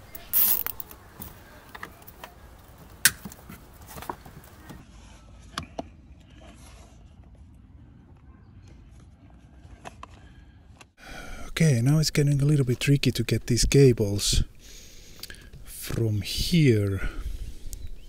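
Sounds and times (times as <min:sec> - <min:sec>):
cables and plastic rustling: 0:00.0 - 0:07.6.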